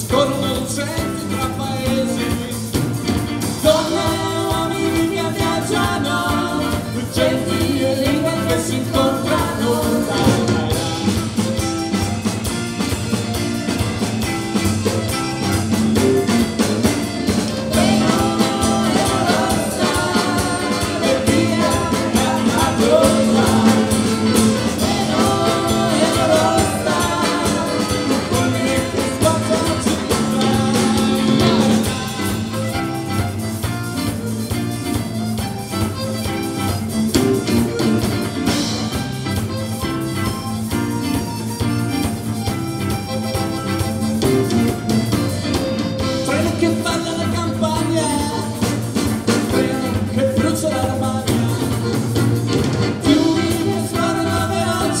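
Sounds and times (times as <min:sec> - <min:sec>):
woman singing: 0:00.0 - 0:11.5, 0:17.0 - 0:32.5, 0:49.3 - 0:55.0
man singing: 0:00.0 - 0:11.7, 0:15.1 - 0:33.2, 0:46.0 - 0:55.0
drum kit: 0:00.0 - 0:55.0
electric bass: 0:00.0 - 0:55.0
electric guitar: 0:00.0 - 0:55.0.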